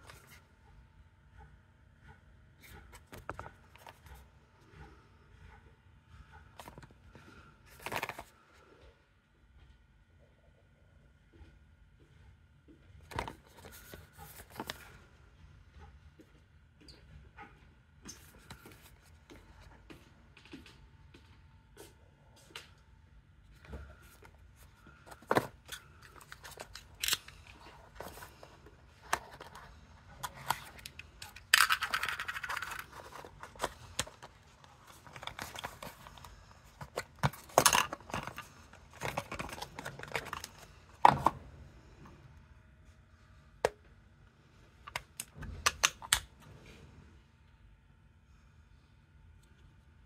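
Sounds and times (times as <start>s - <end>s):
plastic charger clicks and scrapes: 23.8s - 41.4s.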